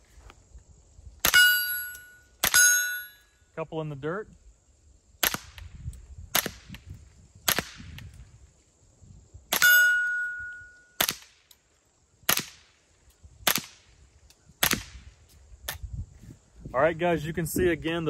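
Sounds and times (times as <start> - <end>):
steel target ringing: 1.3 - 3.3, 9.6 - 11.0
suppressed rifle shots: 11.0 - 11.4.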